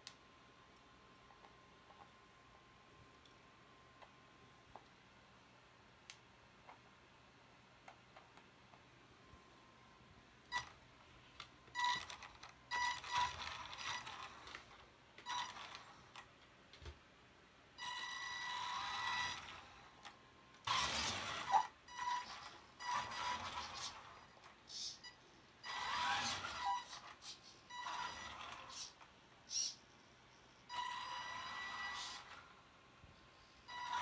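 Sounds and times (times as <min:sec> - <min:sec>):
rc car motor whirring: 0:20.6 - 0:25.0, 0:25.6 - 0:29.8, 0:30.7 - 0:32.5.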